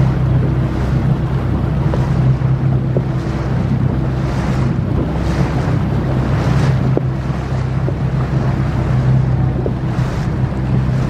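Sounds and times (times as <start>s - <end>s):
motorboat engine running: 0.0s - 11.0s
wind buffeting microphone: 0.0s - 11.0s.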